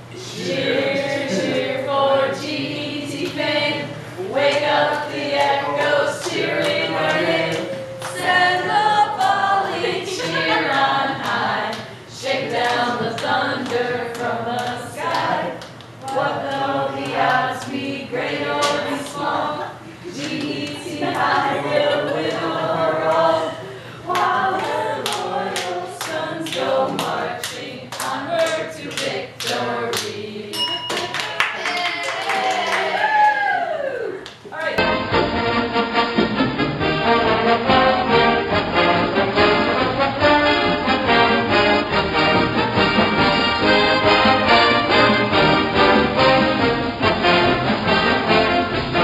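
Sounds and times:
voices singing together: 0:00.0 - 0:30.9.

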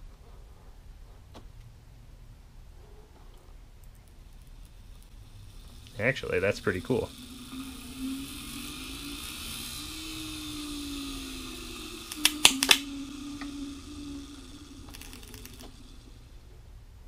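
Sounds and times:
sharp clicks: 0:03.8 - 0:16.0
electric motor whirring: 0:03.8 - 0:17.0.

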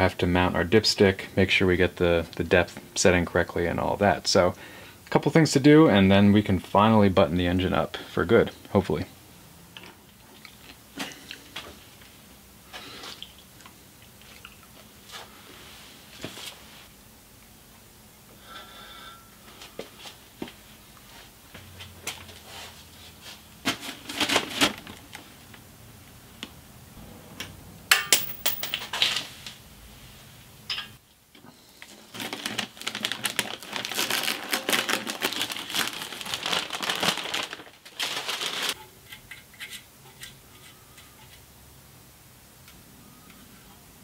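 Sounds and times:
paper and tape peeling and crumpling: 0:31.9 - 0:38.8.

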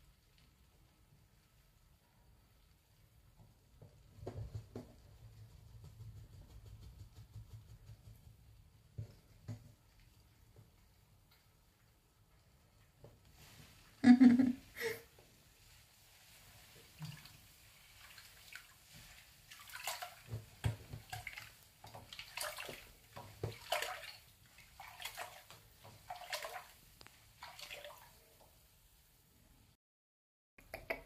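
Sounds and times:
bathwater sloshing and splashing: 0:15.2 - 0:28.8.

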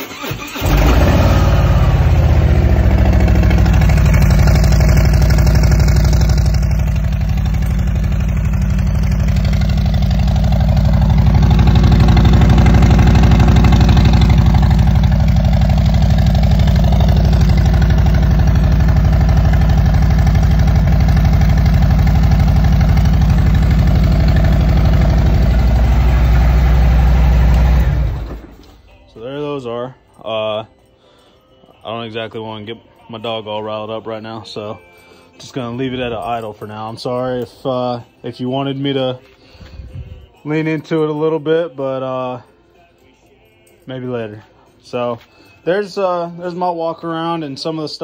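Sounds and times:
motorcycle engine idling: 0:00.7 - 0:28.6.

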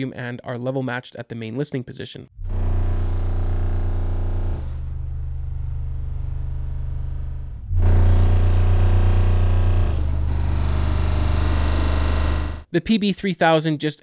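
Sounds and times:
deep bass rumble from subwoofers: 0:02.4 - 0:12.7
room and fireplace vibrating: 0:02.4 - 0:12.7.

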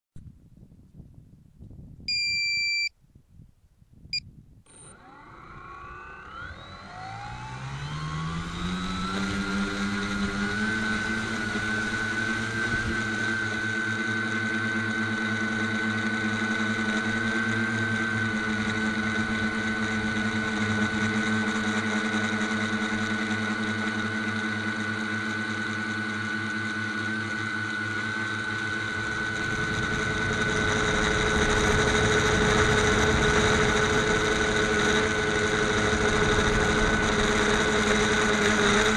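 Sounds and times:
short electronic beeps: 0:02.1 - 0:02.9
drone motors whining: 0:04.7 - 0:38.9.

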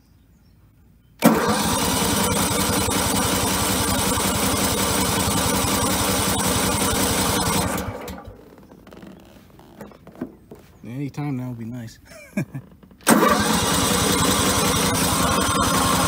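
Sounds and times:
electric starter cranking engine: 0:01.2 - 0:08.9, 0:12.6 - 0:16.0.

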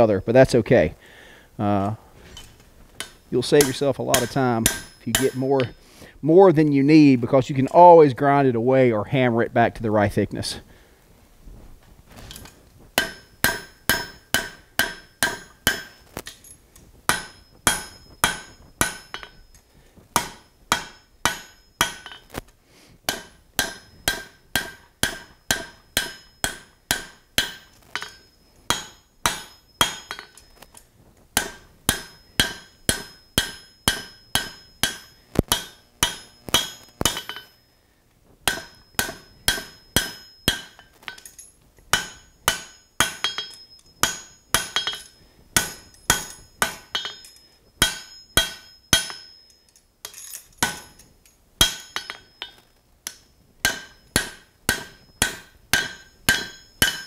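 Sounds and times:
hammer striking metal on anvil: 0:03.0 - 0:05.8, 0:13.0 - 0:16.5, 0:17.1 - 0:19.6, 0:20.2 - 0:22.3, 0:23.1 - 0:30.7, 0:31.4 - 0:37.7, 0:38.4 - 0:57.0.

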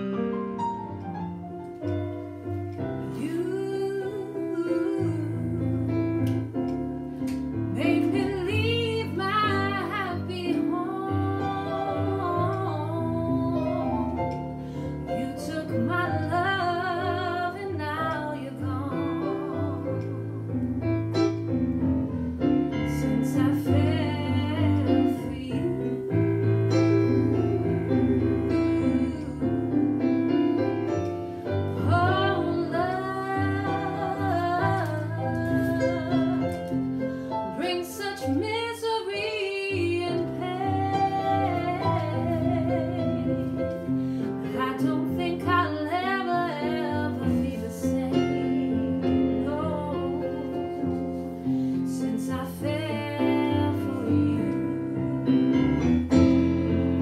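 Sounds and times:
woman singing with vibrato: 0:03.0 - 0:06.0, 0:07.7 - 0:14.1, 0:15.1 - 0:20.4, 0:22.9 - 0:30.0, 0:31.8 - 0:51.0, 0:51.9 - 0:55.0.

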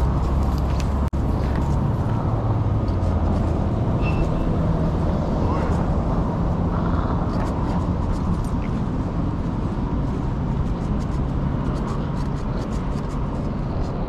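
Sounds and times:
steady low rumble: 0:00.0 - 0:14.0.

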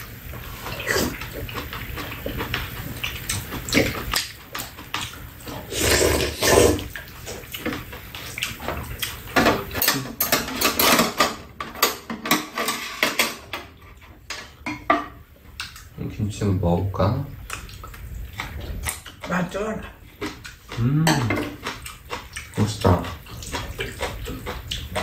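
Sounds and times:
slurping soup: 0:00.4 - 0:04.2, 0:05.4 - 0:07.5
wet chewing: 0:00.4 - 0:09.8, 0:15.4 - 0:16.0, 0:17.3 - 0:25.0
utensils clicking on bowls: 0:01.0 - 0:15.9.

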